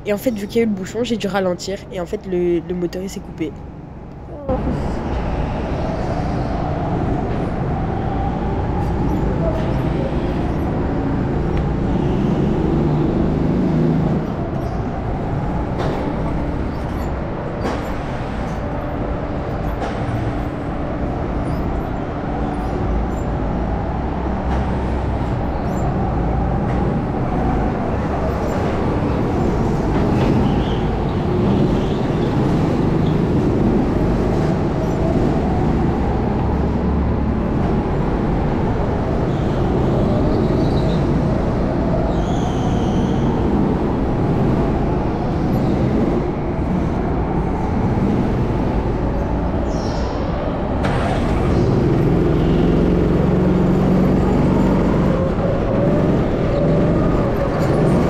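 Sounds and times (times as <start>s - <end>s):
go-kart engine revving: 50.7s - 58.0s.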